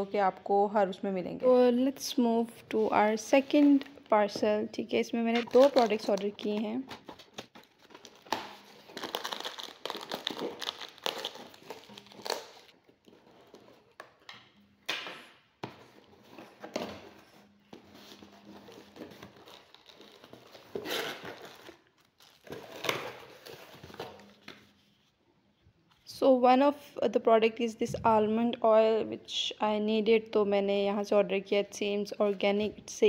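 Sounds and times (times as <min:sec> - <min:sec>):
bubble wrap crinkling: 0:05.4 - 0:14.2, 0:17.9 - 0:24.8
packing tape and cardboard tearing: 0:05.4 - 0:14.6, 0:15.8 - 0:24.8.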